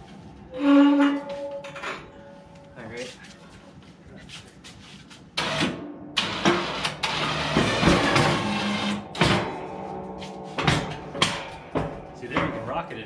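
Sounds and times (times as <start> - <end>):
electric winch running: 5.4 - 9.3.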